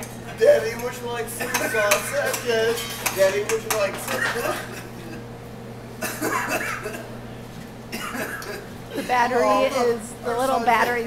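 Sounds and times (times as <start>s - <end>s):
forks clinking on plates: 0.8s - 4.6s.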